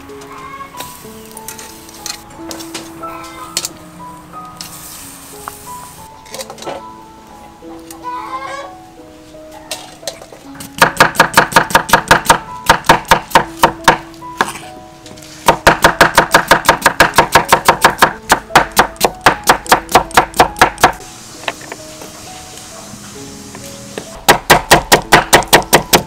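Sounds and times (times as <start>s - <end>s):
background music: 0.0s - 26.0s
knife chopping on wooden board: 10.7s - 14.6s, 15.4s - 21.0s, 24.3s - 26.0s.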